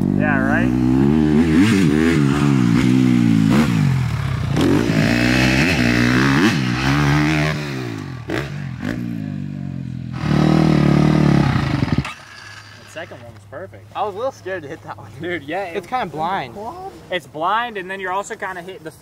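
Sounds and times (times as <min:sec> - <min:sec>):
dirt bike engine revving: 0:00.0 - 0:13.3.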